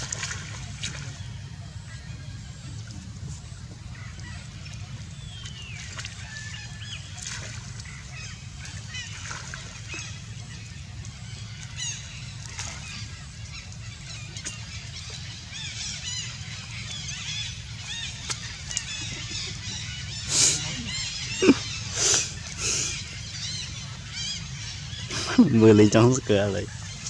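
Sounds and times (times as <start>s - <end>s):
steady low rumble: 0.0s - 27.0s.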